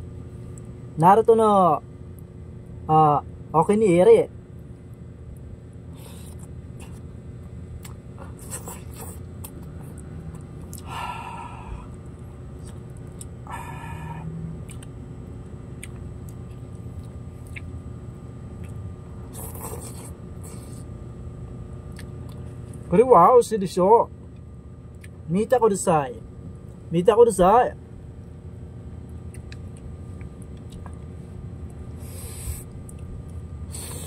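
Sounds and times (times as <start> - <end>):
low hum: 0.0 - 34.0
chewing: 5.3 - 10.9, 11.8 - 15.0, 15.7 - 17.8, 18.6 - 21.0, 21.8 - 22.9, 24.9 - 25.2, 29.0 - 34.0
noodles being slurped: 19.3 - 20.9.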